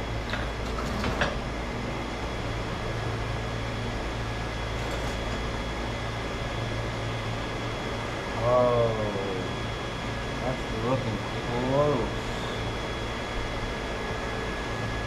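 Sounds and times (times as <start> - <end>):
shop machinery humming: 0.0 - 15.0.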